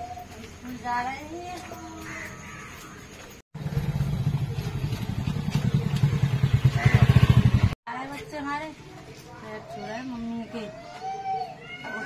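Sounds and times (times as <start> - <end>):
motorcycle engine pulsing: 3.6 - 7.8.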